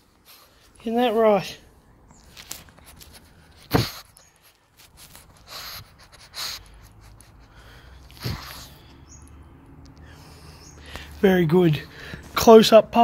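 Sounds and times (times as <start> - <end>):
face rubbing against phone: 2.3 - 7.4
puppy breathing through nose: 2.6 - 11.2.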